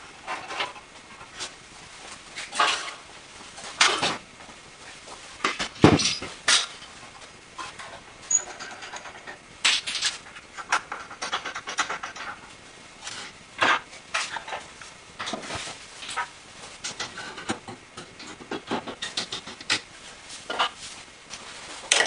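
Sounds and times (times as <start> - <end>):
wooden parts clunking and scraping: 5.4 - 6.7.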